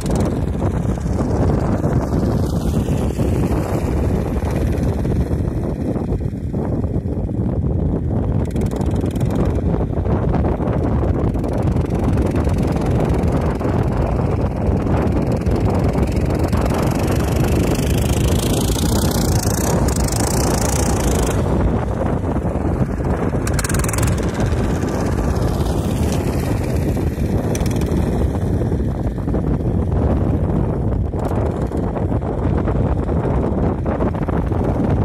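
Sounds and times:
wind rumble on microphone: 0.0s - 35.0s
small engine whining: 10.8s - 29.7s.

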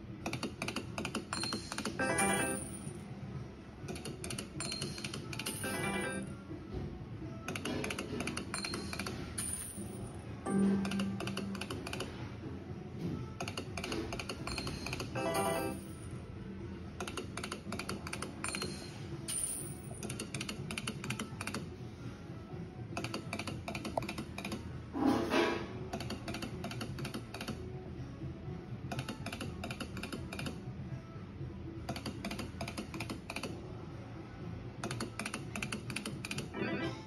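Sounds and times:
rapid clicking effects: 0.2s - 2.0s, 10.6s - 12.2s, 17.0s - 18.8s
slot machine music: 1.3s - 3.2s, 3.9s - 6.5s, 7.8s - 12.4s, 14.2s - 16.3s, 18.3s - 20.6s, 36.4s - 37.0s.

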